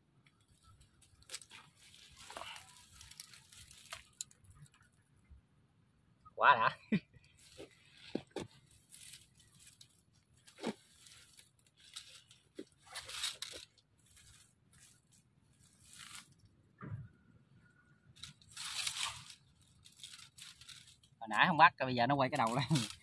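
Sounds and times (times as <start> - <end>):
wire clicks: 0.2 - 4.9
wire cage on dry leaves: 0.2 - 5.2, 7.0 - 16.7, 17.9 - 23.0
plastic mesh bag handled: 0.5 - 4.8, 7.4 - 16.4, 18.2 - 21.2, 22.3 - 23.0.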